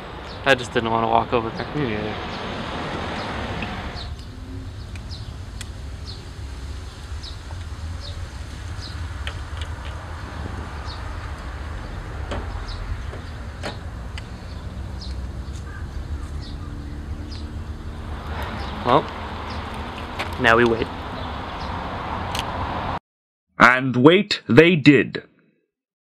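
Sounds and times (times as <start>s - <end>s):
distant traffic rumble: 0.0s - 23.0s
high bird chirps: 10.8s - 20.1s.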